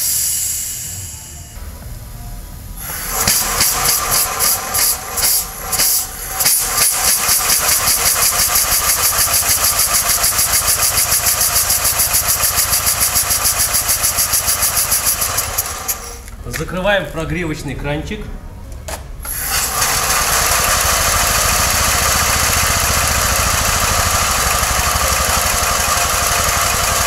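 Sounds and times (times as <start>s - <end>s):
steam hissing from vent: 0.0s - 1.6s, 2.8s - 16.3s, 19.3s - 27.0s
steam engine chuffing: 2.8s - 16.3s, 19.3s - 27.0s.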